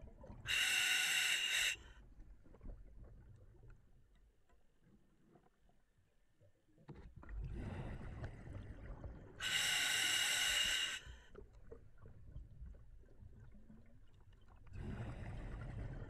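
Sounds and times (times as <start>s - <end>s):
hissing regulator inhalation: 0.5s - 1.8s, 9.4s - 11.1s.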